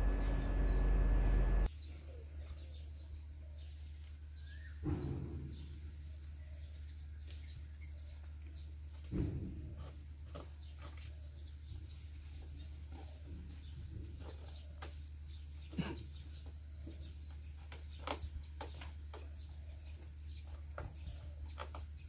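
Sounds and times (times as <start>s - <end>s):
steady low hum: 0.0s - 1.7s
birds chirping: 0.0s - 22.0s.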